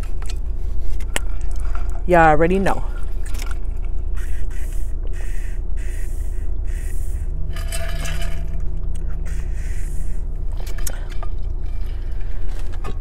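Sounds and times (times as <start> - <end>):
low rumble: 0.0 - 13.0.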